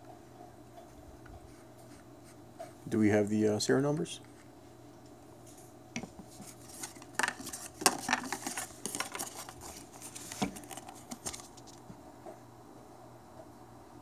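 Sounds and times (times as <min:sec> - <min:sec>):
cardboard box handling: 0:06.1 - 0:11.8.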